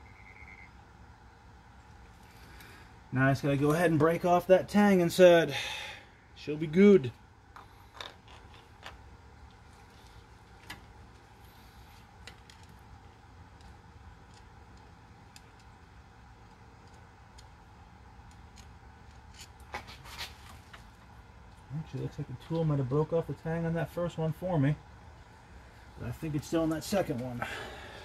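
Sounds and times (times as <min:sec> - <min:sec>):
low steady hum: 0:00.0 - 0:28.0
hand tool clicks and metal taps: 0:18.2 - 0:19.6.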